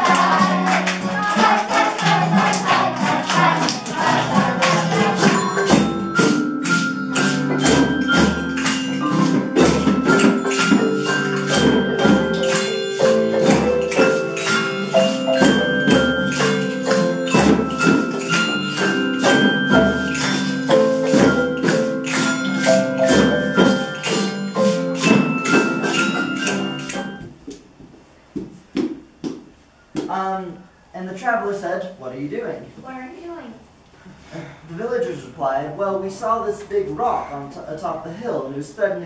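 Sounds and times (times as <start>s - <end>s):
xylophone: 0.0s - 27.3s
hand drums steady beat: 0.0s - 27.4s
acoustic guitar: 0.0s - 27.5s.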